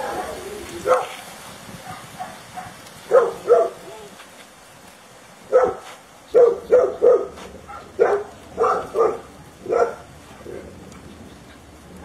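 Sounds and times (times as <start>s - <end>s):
dog barking: 0.8s - 1.2s, 1.8s - 3.8s, 5.5s - 10.7s.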